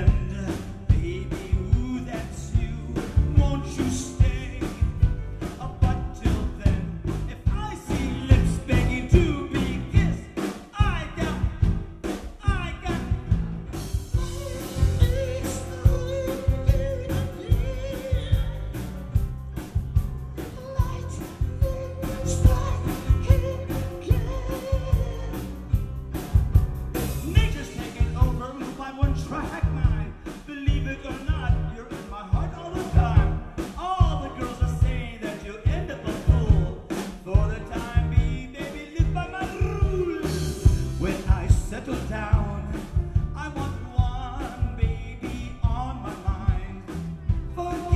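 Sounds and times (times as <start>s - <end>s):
person singing into a microphone: 0.0s - 13.3s, 14.1s - 18.8s, 20.4s - 25.7s, 27.2s - 47.9s
band with steady beat: 0.0s - 47.9s.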